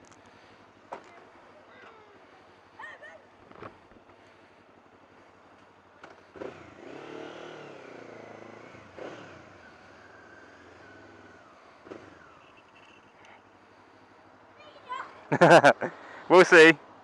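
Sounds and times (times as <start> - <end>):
motorcycle engine pulling away: 6.0 - 13.2.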